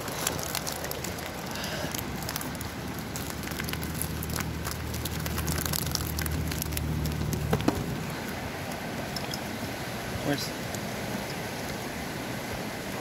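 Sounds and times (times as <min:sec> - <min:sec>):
net rustling on dry leaves: 0:00.0 - 0:09.1.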